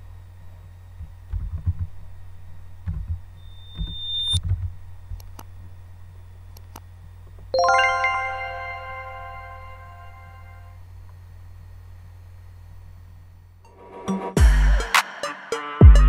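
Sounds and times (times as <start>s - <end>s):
bright electronic chime: 7.6s - 10.7s.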